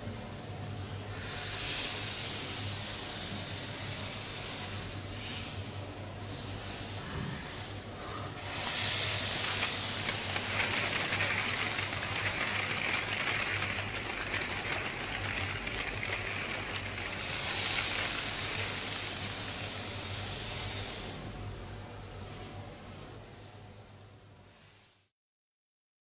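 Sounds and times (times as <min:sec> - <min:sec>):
steady low hum: 0:00.0 - 0:24.3
hissing rustling paper: 0:08.5 - 0:20.6
fine crackle: 0:09.1 - 0:19.2.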